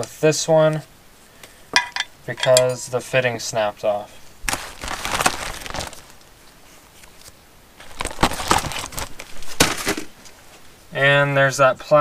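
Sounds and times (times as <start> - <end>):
plastic bag crinkling: 4.4 - 10.6.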